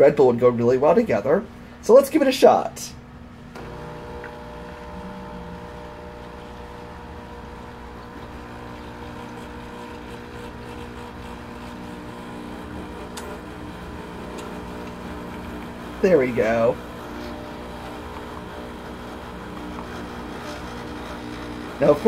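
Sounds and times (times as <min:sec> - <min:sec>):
coffee machine pump humming: 0:03.4 - 0:22.0.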